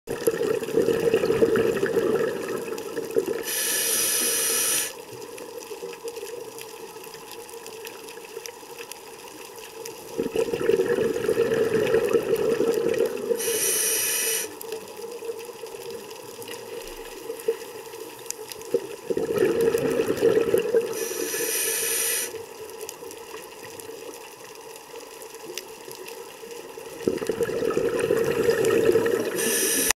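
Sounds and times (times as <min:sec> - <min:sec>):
bubbling underwater exhalations: 0:00.1 - 0:03.7, 0:10.1 - 0:13.6, 0:18.7 - 0:21.4, 0:26.9 - 0:29.9
regulator inhalation hiss: 0:03.4 - 0:05.0, 0:13.4 - 0:14.6, 0:20.9 - 0:22.5, 0:29.2 - 0:30.0.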